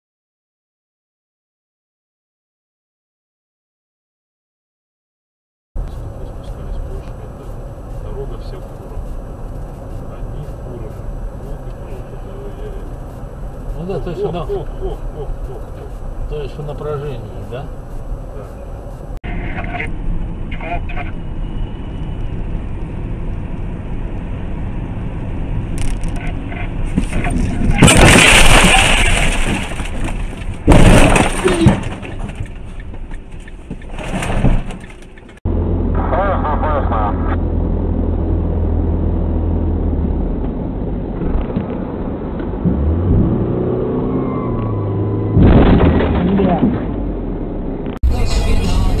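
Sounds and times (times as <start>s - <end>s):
car engine rumble: 5.8s - 49.0s
road noise: 5.8s - 49.0s
car engine accelerating: 35.5s - 49.0s.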